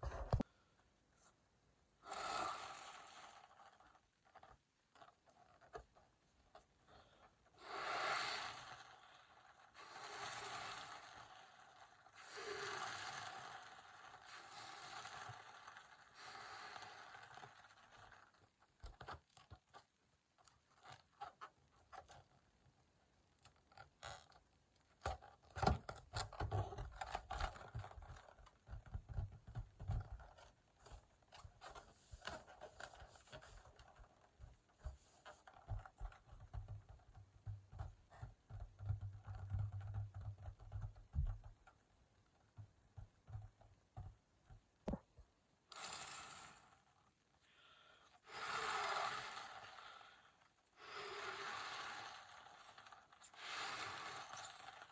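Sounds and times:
breath blown into balloon: 2.0 - 3.6, 6.9 - 18.1, 47.4 - 54.9
rubber balloon squeaking: 7.6 - 19.1, 48.2 - 54.9.

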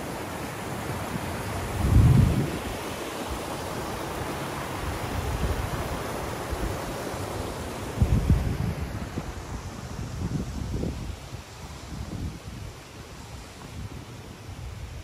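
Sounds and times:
steady rushing noise: 0.0 - 12.2
wind buffeting microphone: 1.5 - 2.9, 8.0 - 12.8.

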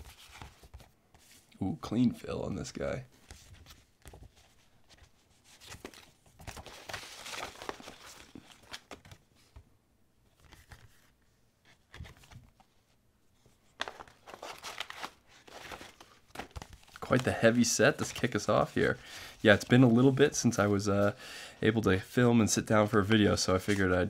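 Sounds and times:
paper stickers rustling: 3.2 - 9.5, 13.7 - 21.2.

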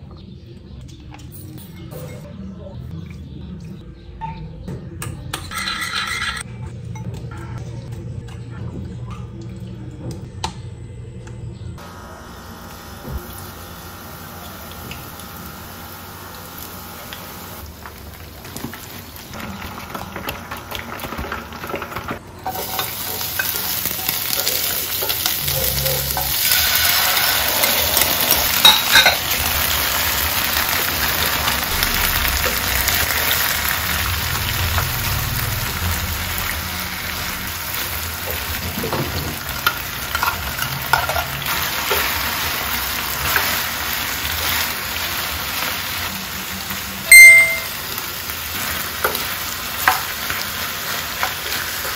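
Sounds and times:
food sizzling in a pan: 22.5 - 51.9.

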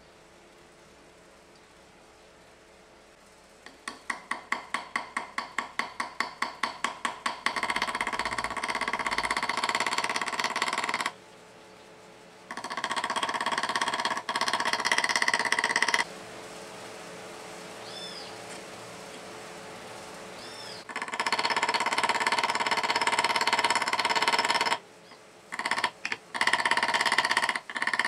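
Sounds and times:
small hammer tapping metal: 3.6 - 11.2, 12.5 - 16.1, 25.5 - 28.0.

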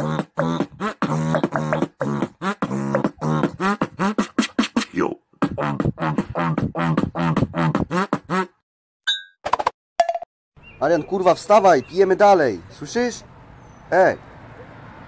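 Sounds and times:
person beatboxing: 0.0 - 8.6.

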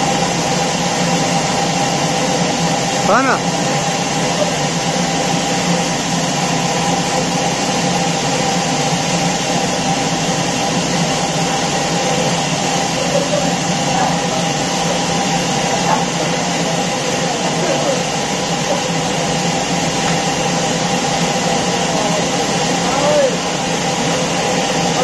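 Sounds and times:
band sawmill humming and whirring: 0.0 - 25.0.

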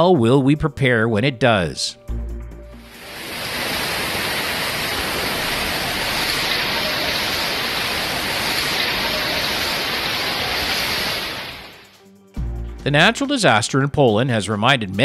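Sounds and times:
torrential rain and wind: 2.8 - 12.0.

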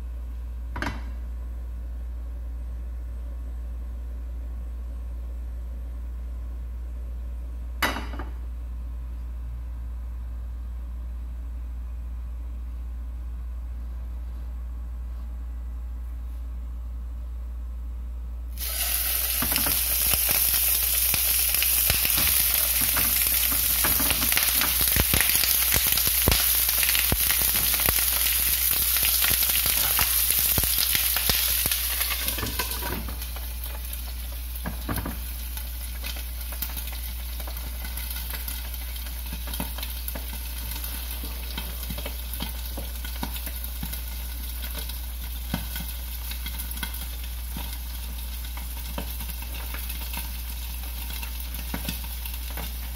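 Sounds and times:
fish sizzling in hot oil: 18.5 - 52.9.

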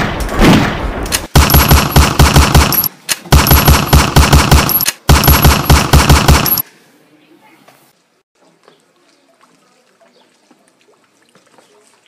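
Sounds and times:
automatic gunfire bursts: 1.2 - 6.6.

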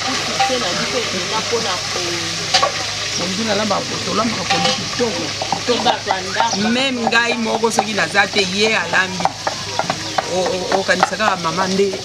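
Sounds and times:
woman talking: 0.0 - 2.5, 5.6 - 6.8
steady hiss: 0.0 - 12.0.

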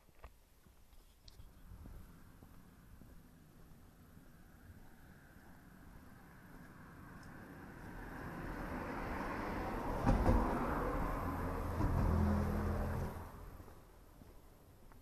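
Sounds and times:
vehicle passing on road: 1.5 - 14.1.

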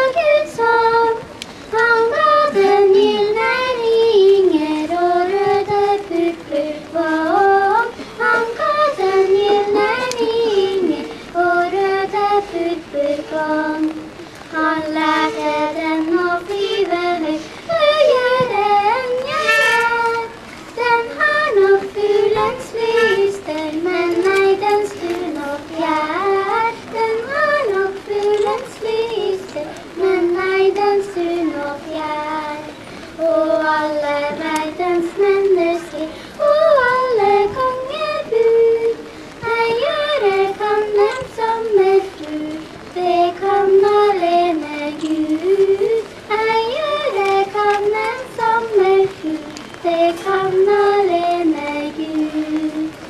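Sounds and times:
girls singing into a microphone: 0.0 - 53.0.

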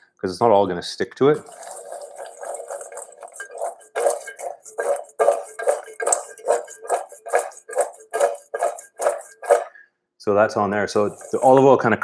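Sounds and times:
chickpeas rattling in metal bowl: 1.4 - 9.7, 10.9 - 11.8.

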